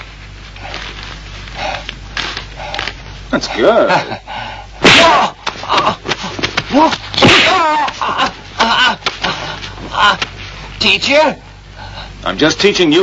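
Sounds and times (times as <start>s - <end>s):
sharp slapping hits: 4.8s - 9.4s
men shouting and grunting: 4.8s - 10.3s.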